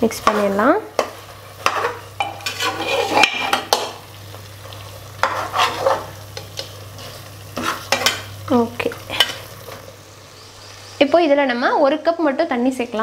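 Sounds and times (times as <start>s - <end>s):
masala sizzling: 0.0s - 13.0s
metal spatula scraping a pot: 0.2s - 4.0s, 5.2s - 8.3s.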